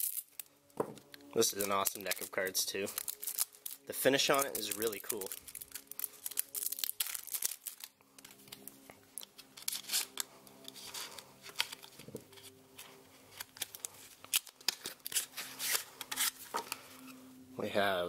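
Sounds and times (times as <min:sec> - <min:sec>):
wrap tearing: 0:00.0 - 0:00.4, 0:01.4 - 0:08.6
plastic wrap crinkling: 0:00.0 - 0:16.8.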